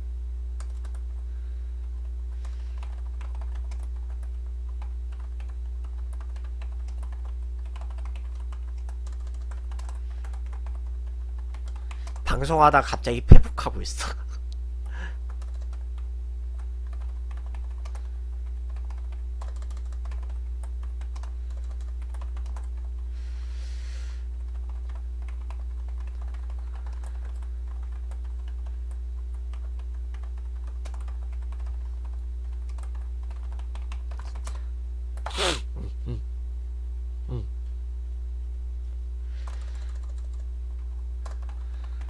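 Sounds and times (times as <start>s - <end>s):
low electrical hum: 0.0s - 42.0s
typing on computer keyboard: 0.6s - 1.1s, 2.4s - 12.2s, 15.3s - 23.0s, 24.4s - 34.6s, 39.4s - 42.0s.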